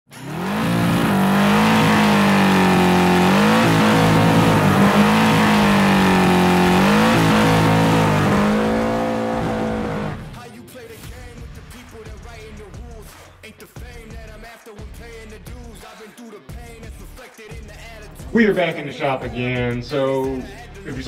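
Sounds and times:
car engine revving high: 0.1 - 10.4.

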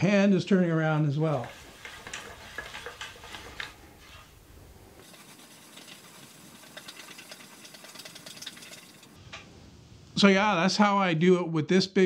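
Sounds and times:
faint scratching: 1.3 - 9.1.

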